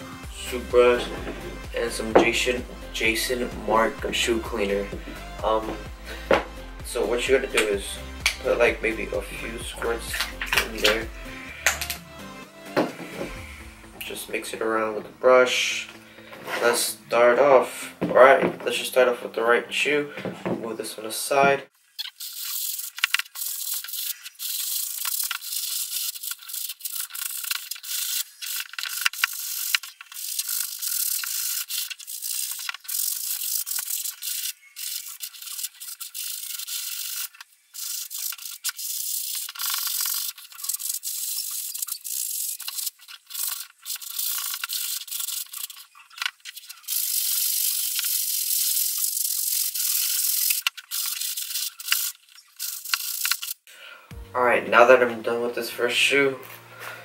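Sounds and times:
toothbrush scrubbing leather shoe: 22.0 - 53.7.

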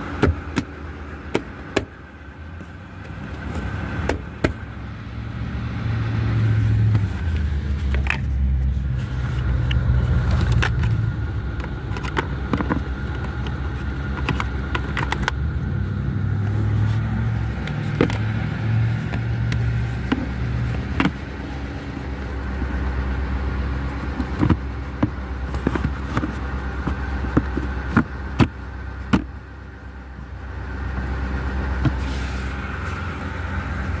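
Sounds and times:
car engine idling: 0.0 - 34.0
sharp clicks and knocks: 1.3 - 2.0, 9.6 - 15.4.

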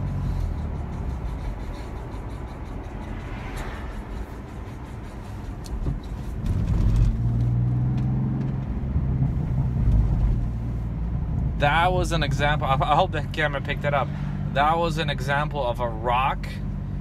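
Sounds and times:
car engine: 0.0 - 17.0
road noise: 0.0 - 17.0.

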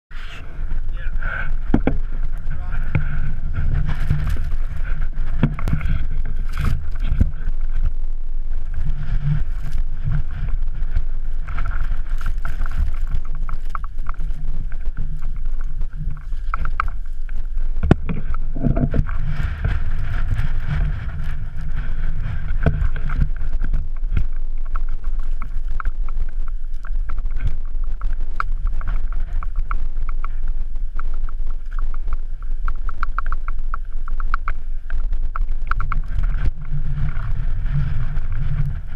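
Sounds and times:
wind buffeting microphone: 0.1 - 38.9.

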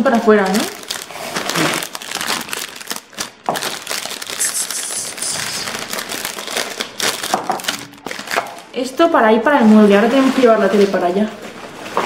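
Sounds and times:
plastic packaging crinkling: 0.0 - 8.9.

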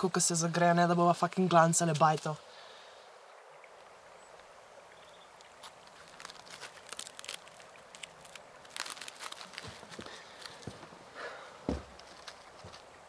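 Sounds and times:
foil wrapper crinkling: 5.6 - 10.7.

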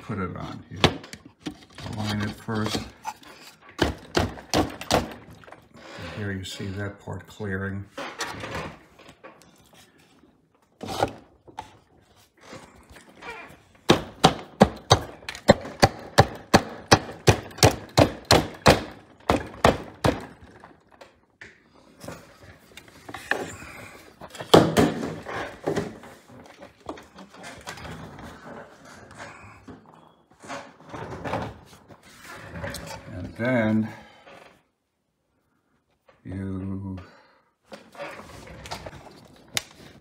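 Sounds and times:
wood and metal knocking: 3.8 - 5.5, 13.8 - 21.2.

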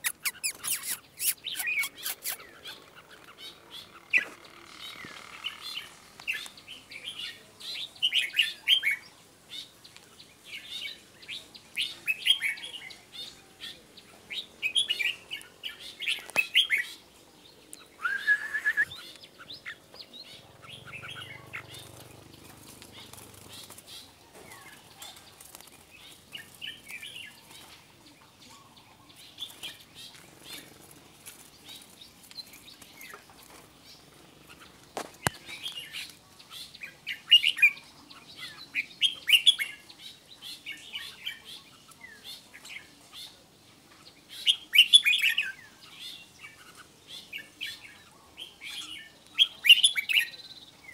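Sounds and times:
birds singing chirpy whistles: 0.0 - 2.8, 17.8 - 19.8.

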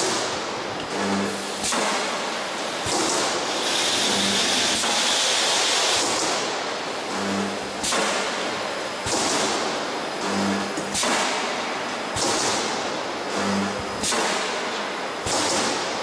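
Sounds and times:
steady machine noise: 0.0 - 16.0
hiss: 2.6 - 6.6, 9.0 - 9.6.

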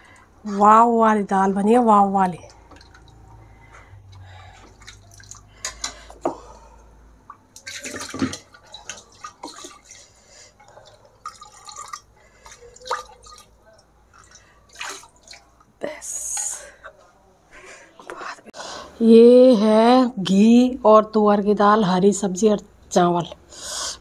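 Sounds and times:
thick lentils bubbling and spluttering: 2.5 - 5.8, 7.4 - 13.6.

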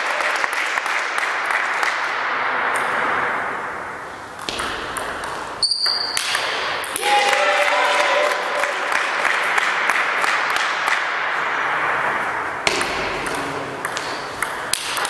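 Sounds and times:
steady background hiss: 0.1 - 7.1, 7.8 - 15.0
table tennis ball hits: 4.4 - 7.1, 12.6 - 15.0.

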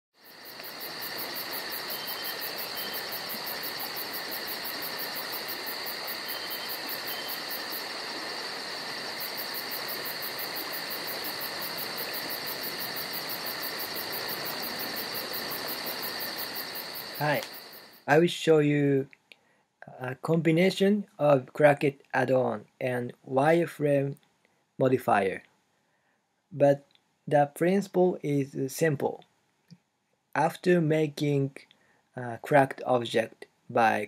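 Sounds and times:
crickets chirping: 0.1 - 18.2.

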